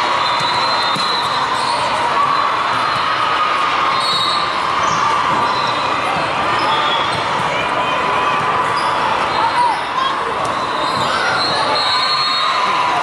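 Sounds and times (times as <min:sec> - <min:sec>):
sports hall din: 0:00.0 - 0:13.0
shoe squeaks on court floor: 0:00.2 - 0:02.0, 0:03.9 - 0:07.3, 0:08.6 - 0:12.6.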